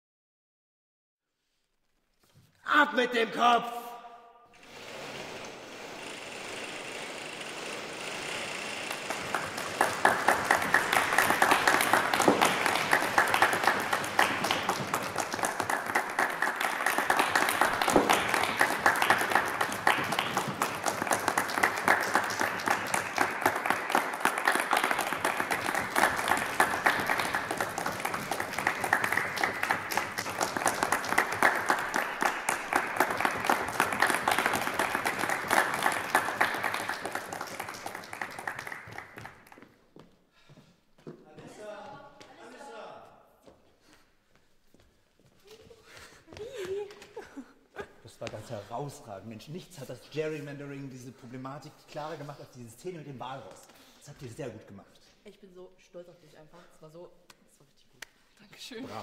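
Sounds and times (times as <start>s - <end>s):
audience applauding: 5.8s - 39.9s.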